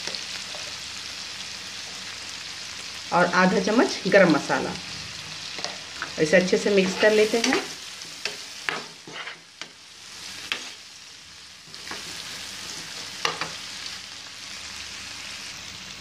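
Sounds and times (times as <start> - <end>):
masala sizzling in a pan: 0.0 - 16.0
spatula scraping a pan: 5.5 - 10.9, 11.7 - 13.6.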